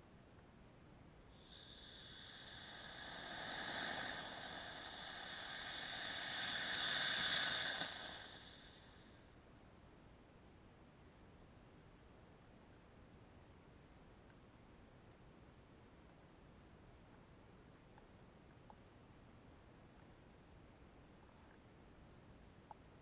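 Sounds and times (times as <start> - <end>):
rocket motor hissing: 1.4 - 9.0.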